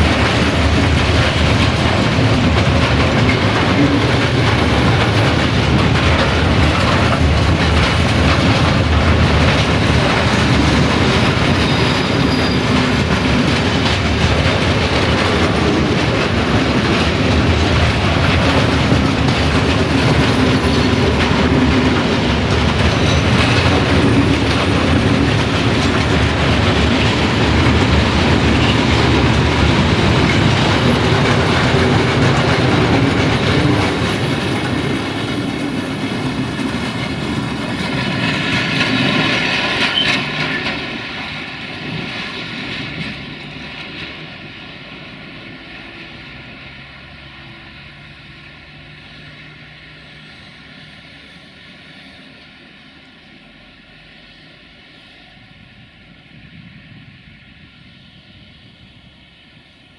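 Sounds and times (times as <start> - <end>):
train wheels clattering over rail joints: 0.0 - 46.4.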